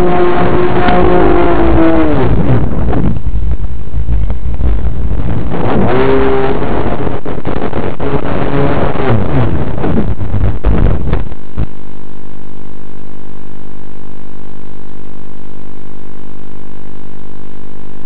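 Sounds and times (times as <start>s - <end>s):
wind rush: 0.0s - 11.7s
loud steady buzz: 0.0s - 18.0s.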